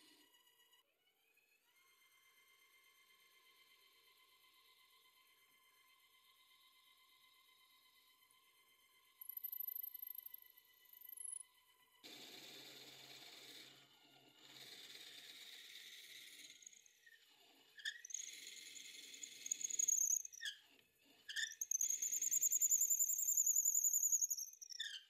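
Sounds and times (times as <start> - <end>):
drill bit squealing: 17.8 - 20.7, 21.3 - 25.0.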